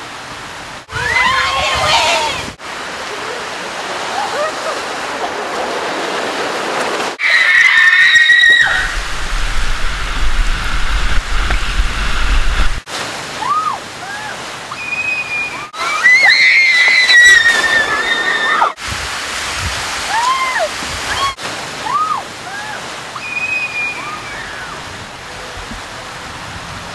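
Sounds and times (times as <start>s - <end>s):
water rushing down slide: 0.8s - 26.9s
high-pitched screams: 0.9s - 2.5s, 7.2s - 9.0s, 13.4s - 18.8s, 20.1s - 24.8s
low rumble in tube: 8.7s - 12.8s.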